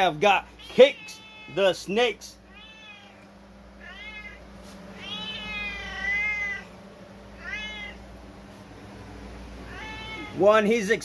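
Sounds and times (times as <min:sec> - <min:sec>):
cat meowing: 0:00.6 - 0:01.7, 0:02.5 - 0:04.4, 0:05.0 - 0:06.7, 0:07.4 - 0:08.0, 0:09.6 - 0:10.4.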